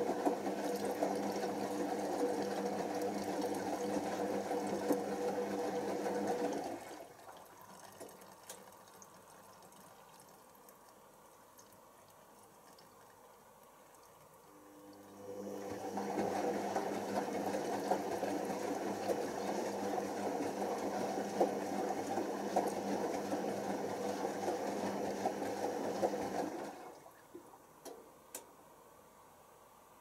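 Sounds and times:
washing machine drum humming: 0:00.0 - 0:08.6, 0:14.6 - 0:28.0
water and laundry sloshing: 0:00.0 - 0:27.7
faint clicks or drips: 0:07.3 - 0:15.1.

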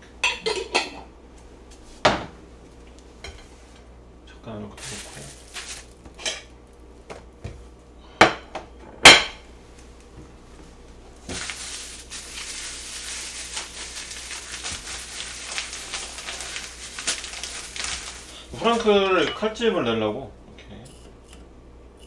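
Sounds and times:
plastic bag crinkling: 0:04.8 - 0:06.2, 0:11.3 - 0:19.0.

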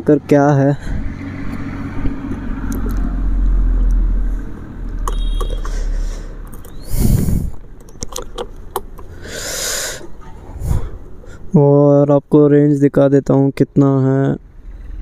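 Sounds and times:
clicks and rattles on handlebar: 0:07.5 - 0:09.2.

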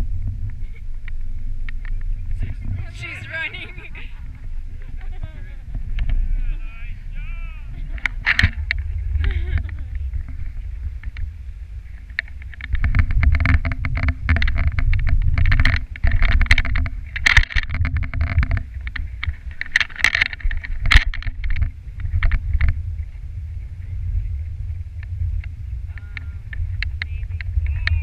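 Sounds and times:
sled runners scraping on snow: 0:02.3 - 0:05.9
sled clicks and knocks: 0:07.8 - 0:11.3, 0:11.9 - 0:23.2, 0:25.0 - 0:28.0.

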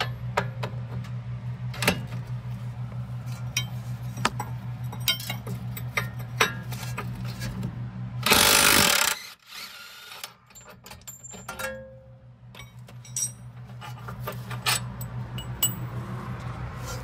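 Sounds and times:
metal tools clinking: 0:04.4 - 0:07.4, 0:10.4 - 0:15.9
cordless power tool burst: 0:08.2 - 0:10.2.

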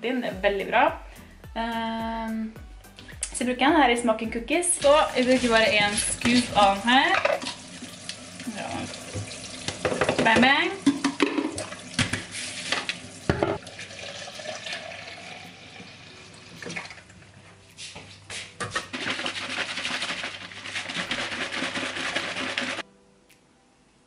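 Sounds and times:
scoop knocking on tub: 0:04.8 - 0:07.5
liquid sloshing in shaker: 0:04.8 - 0:07.6, 0:18.3 - 0:22.8.

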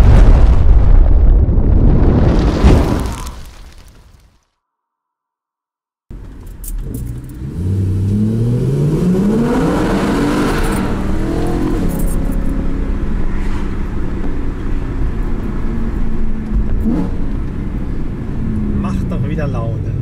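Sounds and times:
car engine accelerating: 0:06.2 - 0:20.0.

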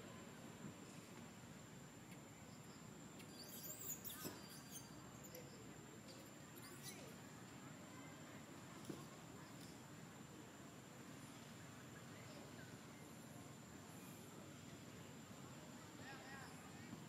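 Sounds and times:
thin steady high whine: 0:00.0 - 0:17.0
faint high-pitched animal squeaks: 0:03.3 - 0:05.6, 0:06.6 - 0:07.2.

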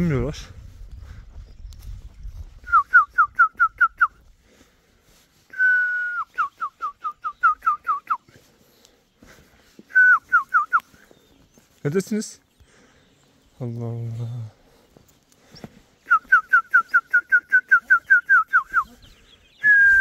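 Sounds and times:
person whistling: 0:02.6 - 0:04.2, 0:05.5 - 0:08.3, 0:09.9 - 0:10.9, 0:16.1 - 0:19.0, 0:19.6 - 0:20.0.

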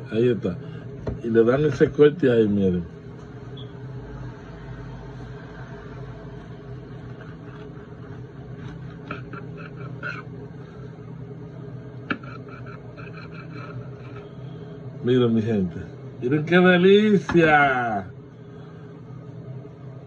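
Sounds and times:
steady low hum: 0:00.0 - 0:20.0
knife sawing through burrito: 0:06.8 - 0:10.4, 0:12.1 - 0:14.4.

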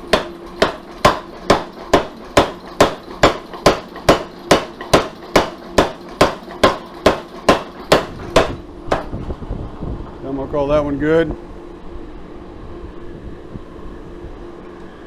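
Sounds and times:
power hammer striking steel: 0:00.0 - 0:09.1.

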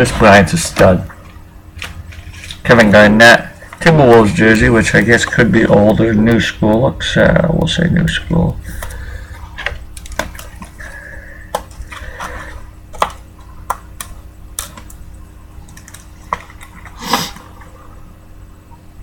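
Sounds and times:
card rustle: 0:00.2 - 0:03.0, 0:08.7 - 0:15.0
cards clicking and tapping: 0:07.6 - 0:15.0.

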